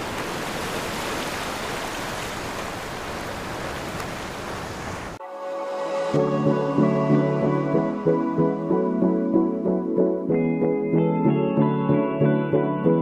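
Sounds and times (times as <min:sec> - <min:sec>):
surf washing over rocks: 0:00.0 - 0:05.2
soft music: 0:05.2 - 0:13.0.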